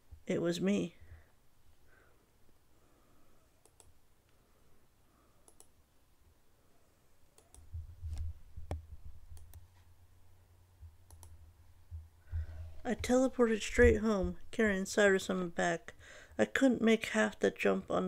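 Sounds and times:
sharp clicks: 0:03.6 - 0:04.0, 0:05.4 - 0:05.7, 0:07.4 - 0:09.7, 0:11.1 - 0:11.4.

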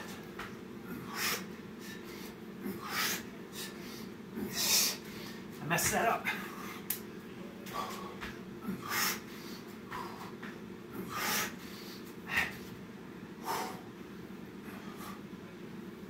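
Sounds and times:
steady low hum: 0:00.0 - 0:16.0
man breathing hard: 0:00.8 - 0:05.6, 0:06.2 - 0:06.9, 0:07.6 - 0:12.8, 0:13.4 - 0:14.0, 0:14.6 - 0:15.4.

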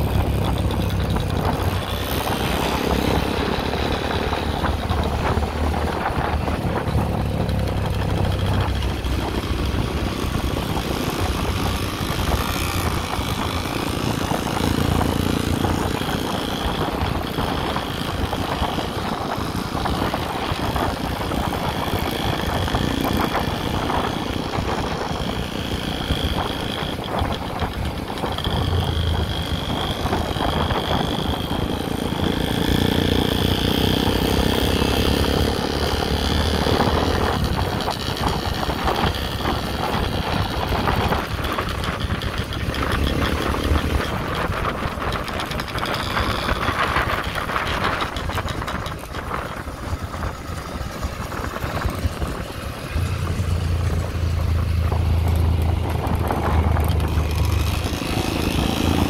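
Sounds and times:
motorcycle engine running: 0:00.0 - 0:59.0
wind and road noise: 0:00.0 - 0:59.0.

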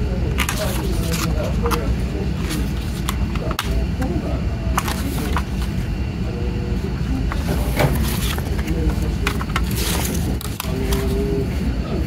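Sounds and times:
paper rustling: 0:00.3 - 0:03.8, 0:04.7 - 0:05.9, 0:07.3 - 0:11.4.

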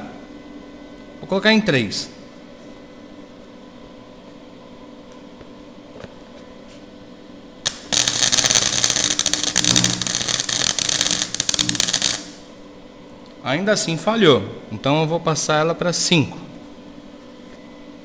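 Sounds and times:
steady hum: 0:00.0 - 0:18.0
welder arc crackling: 0:07.7 - 0:12.5.

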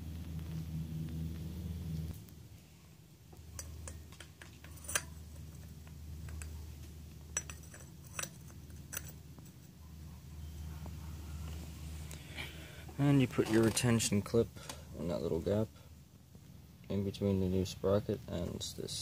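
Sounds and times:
light metallic clinks: 0:03.4 - 0:09.9.

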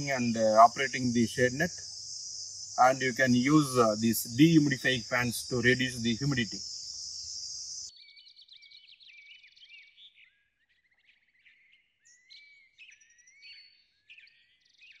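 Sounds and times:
crickets trilling: 0:00.0 - 0:07.9
birds chirping and whistling: 0:00.0 - 0:15.0.

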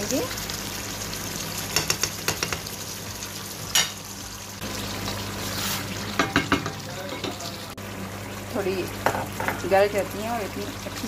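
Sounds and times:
chicken sizzling in a pan: 0:00.0 - 0:11.0
wooden spoon knocking on pan: 0:01.8 - 0:02.7, 0:06.2 - 0:07.4.

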